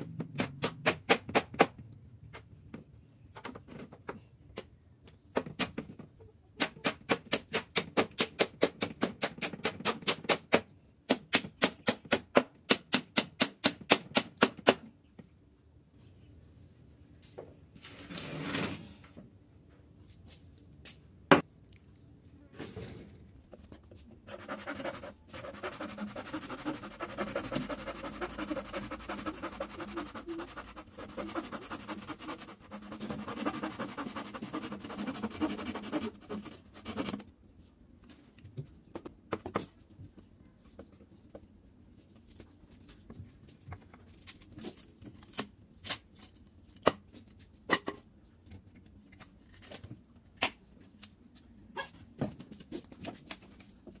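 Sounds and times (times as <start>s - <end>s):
handsaw cutting wood: 24.3s - 37.2s.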